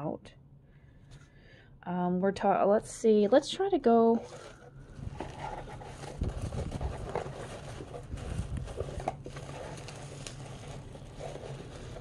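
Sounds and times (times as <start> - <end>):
bubble wrap crinkling: 4.2 - 12.0.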